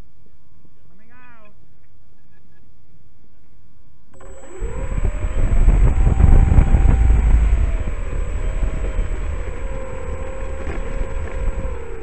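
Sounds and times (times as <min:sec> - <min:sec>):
model airplane motor and propeller: 0:04.1 - 0:12.0
wind rumble on microphone: 0:04.2 - 0:12.0.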